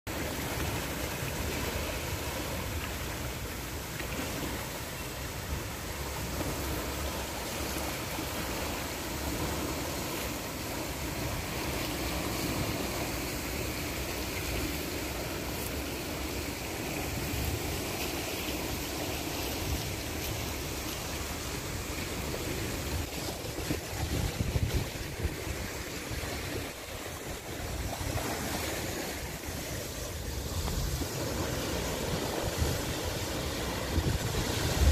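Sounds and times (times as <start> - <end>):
water rushing through channel: 0.1 - 34.9
wind buffeting microphone: 19.5 - 34.9.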